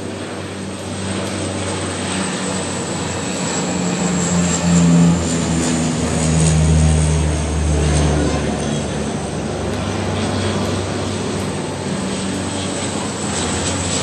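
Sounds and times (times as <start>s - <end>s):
high turbine whine: 0.0s - 14.0s
propeller plane drone: 0.0s - 14.0s.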